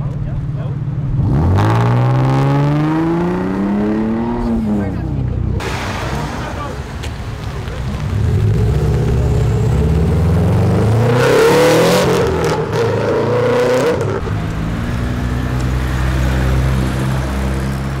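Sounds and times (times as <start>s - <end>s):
car engine revving hard: 1.1s - 4.7s, 8.1s - 14.2s
exhaust cracks: 5.6s - 10.8s.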